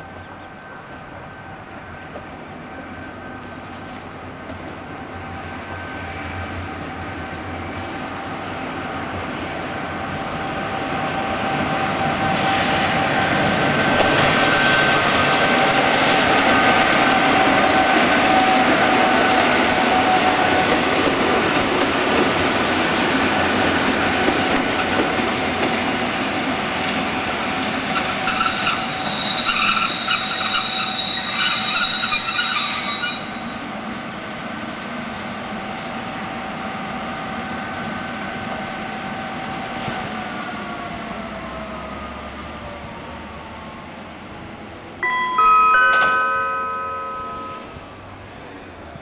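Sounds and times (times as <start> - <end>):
train wheels rumbling on rails: 0.0 - 45.0
high brake squeals: 21.6 - 23.5, 26.6 - 33.7.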